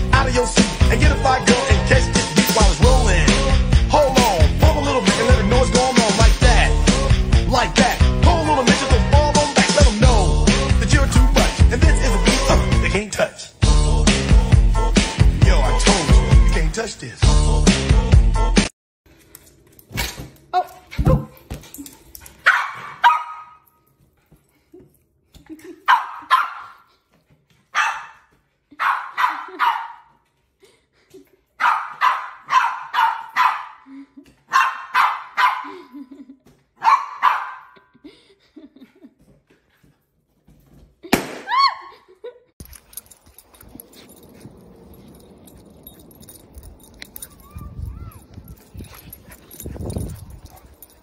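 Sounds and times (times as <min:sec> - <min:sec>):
dog yelp: 0:22.4 - 0:23.6, 0:25.9 - 0:26.8, 0:27.7 - 0:30.1, 0:31.6 - 0:33.9, 0:34.5 - 0:35.9, 0:36.8 - 0:37.8, 0:45.9 - 0:51.0
small dog barking: 0:22.4 - 0:23.6, 0:25.9 - 0:26.8, 0:27.7 - 0:28.2, 0:28.8 - 0:30.1, 0:31.6 - 0:33.9, 0:34.5 - 0:35.8, 0:36.8 - 0:37.8.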